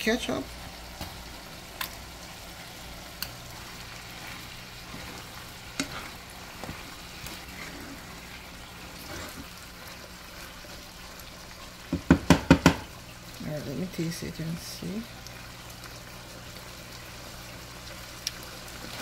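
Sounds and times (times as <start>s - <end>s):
meat sizzling in a pan: 0.0s - 19.0s
wooden spoon stirring: 3.5s - 10.9s
spoon tapping against pan: 11.9s - 12.9s.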